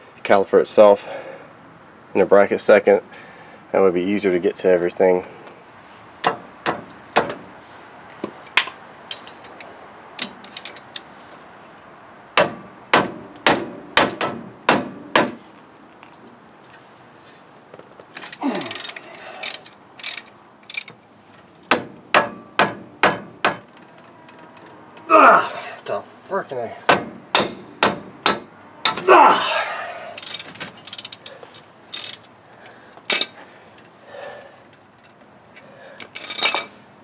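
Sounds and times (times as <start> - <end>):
hand ratchet clicking: 18.2 - 21.0, 30.2 - 33.3.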